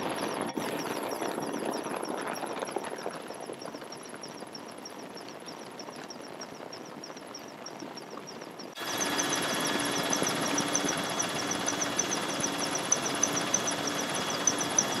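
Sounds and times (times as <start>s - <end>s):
helicopter noise from aboard: 0.0s - 4.8s, 8.5s - 15.0s
outdoor background noise: 0.0s - 15.0s
rapid high ticking: 0.0s - 15.0s.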